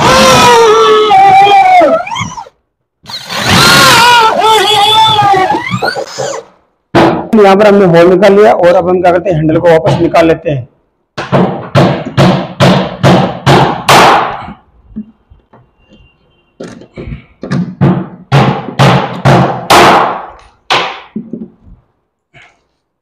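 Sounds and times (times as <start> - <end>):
sharp knocks on plywood: 6.9 - 7.3, 11.2 - 14.4, 17.4 - 21.6.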